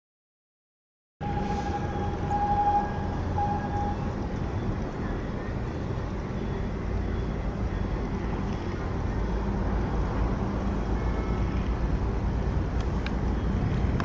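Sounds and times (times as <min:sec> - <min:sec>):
thin high tone: 0:01.2 - 0:04.7
faint hum: 0:01.2 - 0:14.0
low rumble: 0:01.2 - 0:14.0.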